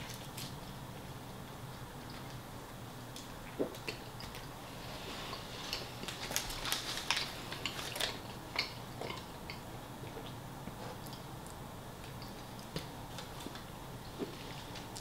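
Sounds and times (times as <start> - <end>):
person chewing food: 3.1 - 15.0.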